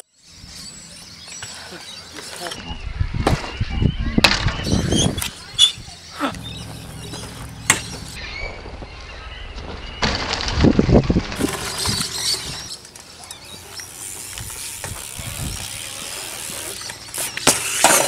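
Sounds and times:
bike freewheel hub ticking: 6.4s - 8.2s, 13.4s - 17.8s
tyres rolling on concrete: 11.4s - 18.0s.

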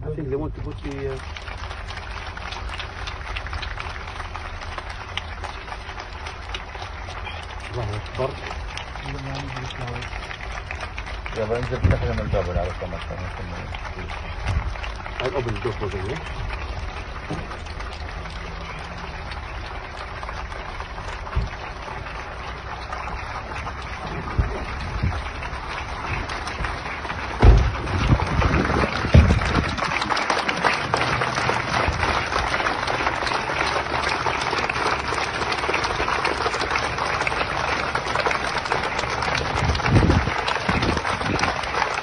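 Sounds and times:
crowd applause: 0.0s - 42.0s
dull low thumps: 23.4s - 30.1s.

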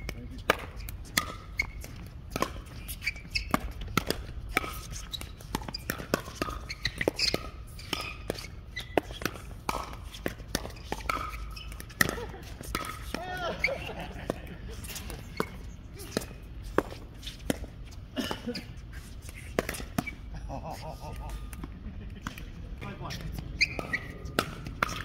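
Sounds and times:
paddles striking pickleball: 0.0s - 17.7s.

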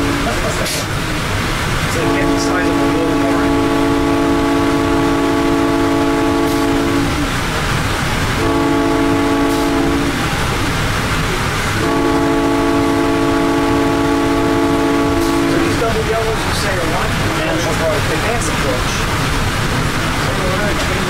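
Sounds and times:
train air horn blasts: 0.0s - 0.3s, 1.9s - 7.3s, 8.4s - 10.3s, 11.8s - 15.9s
rumble of running train: 0.0s - 21.0s.

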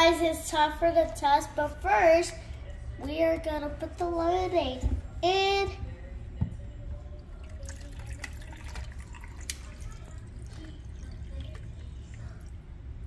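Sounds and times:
liquid pouring into a cup: 7.1s - 12.7s.

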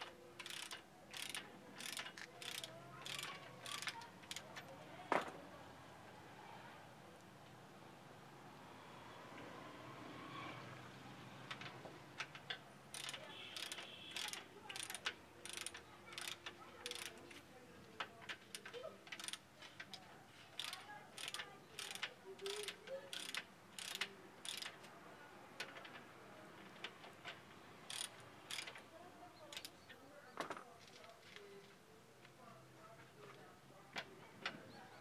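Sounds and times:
mechanical clicks and rasps: 0.0s - 4.7s, 11.4s - 24.9s, 27.8s - 28.9s, 29.5s - 29.8s.

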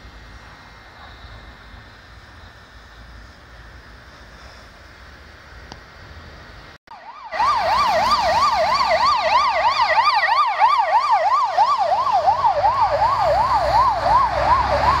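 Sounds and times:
low traffic rumble: 0.0s - 15.0s
ambulance siren yelping: 6.9s - 15.0s.

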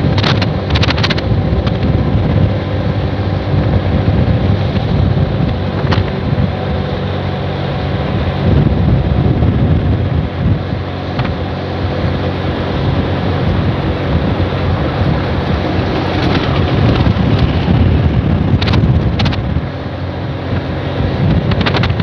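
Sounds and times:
motorcycle engine running: 0.0s - 22.0s
wind rushing over microphone: 0.0s - 22.0s.

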